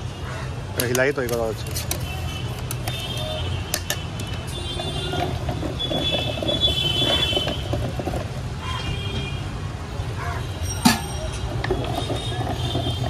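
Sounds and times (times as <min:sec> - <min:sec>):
busy street traffic rumble: 0:00.0 - 0:13.0.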